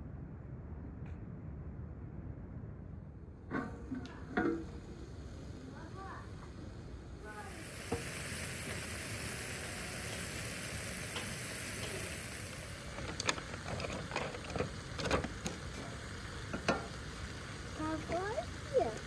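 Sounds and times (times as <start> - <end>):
sauce sizzling in a pan: 4.7 - 19.0
peppers dropping into pan: 11.2 - 18.2.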